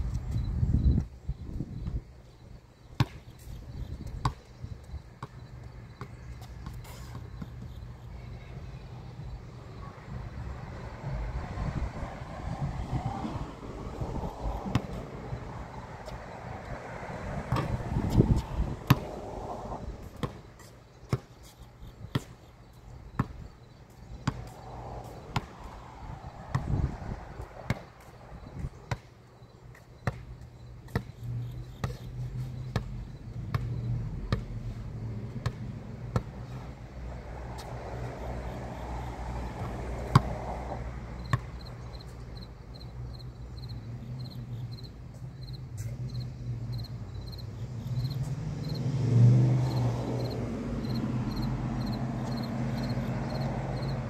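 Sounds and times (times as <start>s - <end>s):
basketball bouncing on concrete: 3.0s - 4.5s, 5.2s - 7.8s, 14.6s - 15.1s, 17.4s - 19.2s, 20.1s - 20.5s, 22.1s - 22.4s, 23.1s - 23.4s, 24.2s - 24.6s, 25.3s - 25.6s, 26.5s - 26.9s, 27.7s - 29.1s, 29.7s - 31.2s, 31.8s - 32.1s, 32.7s - 34.6s, 35.3s - 36.5s, 39.6s - 40.4s, 41.2s - 42.2s
steady low rumble: 9.1s - 20.2s.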